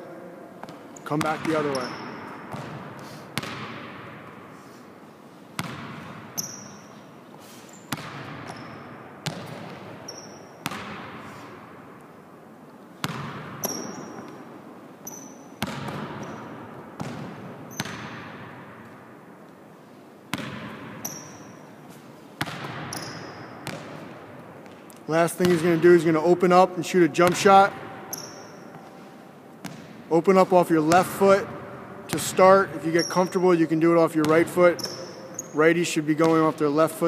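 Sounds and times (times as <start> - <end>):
sneaker squeaks: 0.6 - 3.7, 5.6 - 11.6, 13.0 - 18.3, 20.3 - 25.7, 27.3 - 29.9, 32.7 - 33.4, 34.2 - 35.7
basketball bouncing on wooden floor: 0.6 - 4.3, 5.6 - 6.5, 7.9 - 11.2, 13.0 - 14.4, 15.1 - 18.7, 20.3 - 21.5, 22.4 - 24.8, 29.6 - 30.0.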